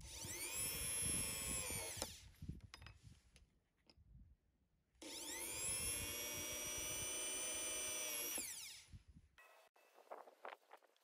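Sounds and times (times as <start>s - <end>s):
electric drill drilling metal: 0.0s - 2.3s, 5.0s - 9.0s.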